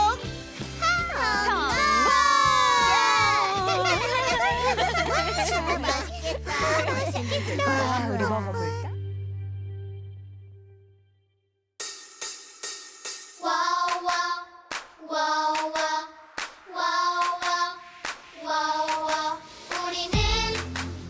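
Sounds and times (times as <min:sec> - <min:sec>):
music: 0:00.0 - 0:21.0
voices singing children's song: 0:00.8 - 0:08.8, 0:13.4 - 0:20.7
sharp hand claps: 0:13.8 - 0:15.0, 0:15.6 - 0:18.3.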